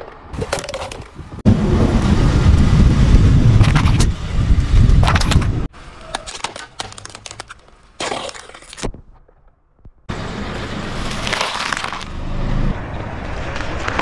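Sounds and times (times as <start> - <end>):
tyre crunching plastic bottles: 6.0 - 9.1, 11.0 - 12.2
tyre crunching lettuce leaves: 11.0 - 12.1.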